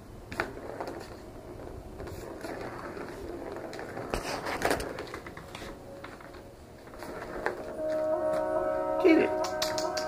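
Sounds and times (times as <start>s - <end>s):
plastic ball rattling in track: 0.3s - 7.7s.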